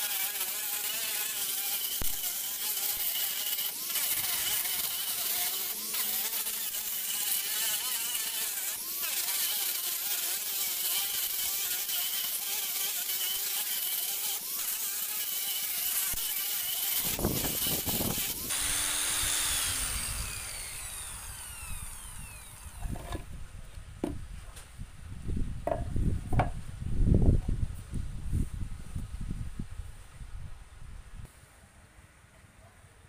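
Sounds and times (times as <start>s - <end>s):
angle grinder sanding wood: 0.0s - 23.3s
grinder disc spinning down: 16.0s - 23.3s
hands knocking and rubbing wood: 22.8s - 23.2s, 24.0s - 24.2s, 25.6s - 26.6s.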